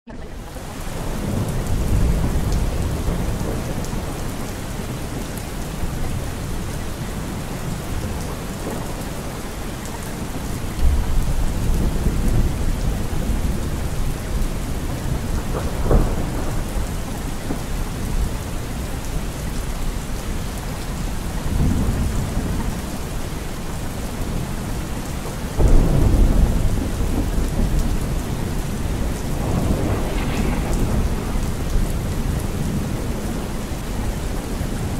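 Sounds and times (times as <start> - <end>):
thunder rumbling: 0.1 - 19.5, 25.5 - 34.9
steady rain: 0.1 - 34.9.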